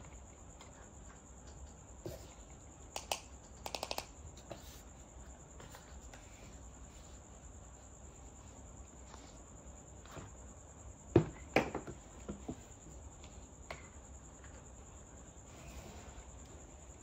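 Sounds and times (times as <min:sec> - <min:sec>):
toy pieces clicking and tapping: 0:02.9 - 0:04.1.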